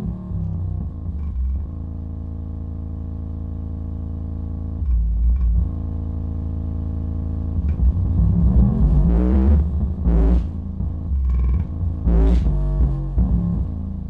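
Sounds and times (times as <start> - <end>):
bass-heavy music from subwoofer: 0.0 - 14.0
heavy bass hits: 4.2 - 14.0.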